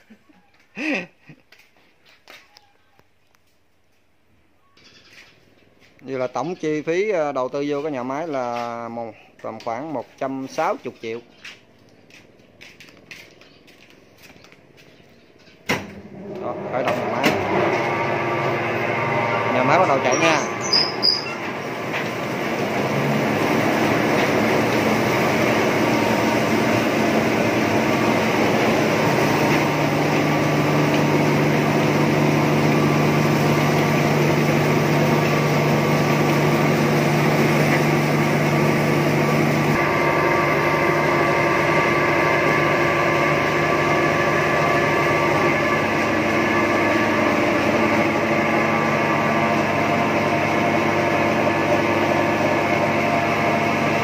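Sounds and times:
milling machine hum and rattle: 15.9s - 54.0s.

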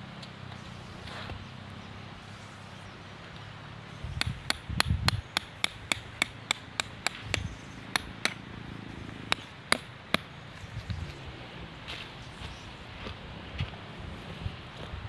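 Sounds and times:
hammer striking tent stake: 4.1s - 8.4s, 9.3s - 10.3s.

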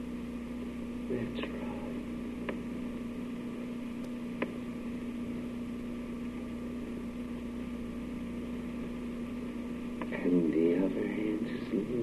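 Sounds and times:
electrical hum and hiss: 0.0s - 12.0s
faint clicks: 2.4s - 2.7s.

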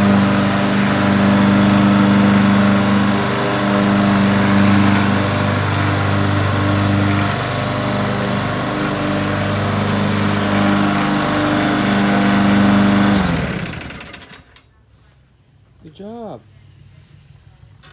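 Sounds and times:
lawn mower engine running: 0.0s - 14.6s.

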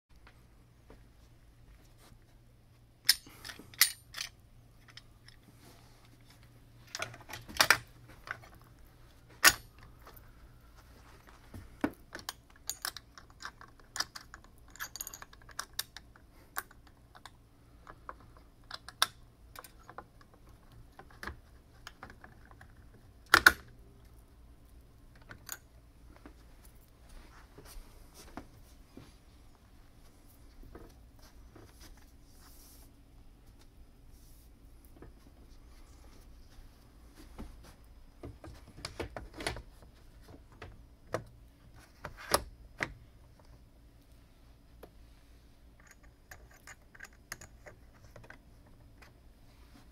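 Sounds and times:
metal clamps clicking and knocking: 3.0s - 5.4s.

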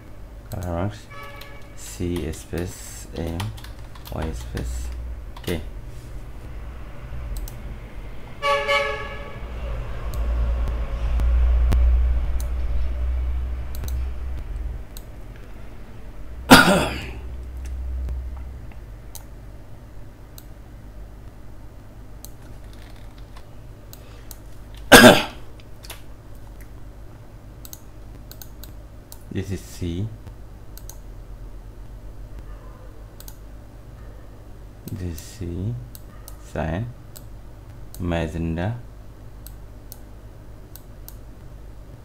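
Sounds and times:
keyboard and mouse clicks: 1.3s - 5.6s, 7.3s - 7.6s, 10.1s - 12.6s, 13.6s - 15.5s, 17.4s - 19.3s, 22.2s - 24.9s, 27.6s - 29.3s, 30.2s - 31.1s, 33.2s - 33.4s
low rumble: 9.3s - 16.5s, 17.2s - 19.0s.

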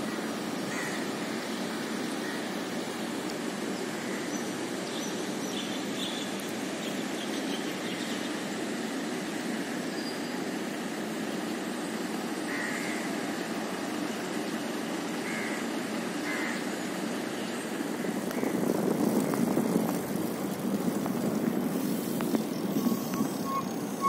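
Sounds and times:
city traffic rumble: 0.0s - 24.0s.

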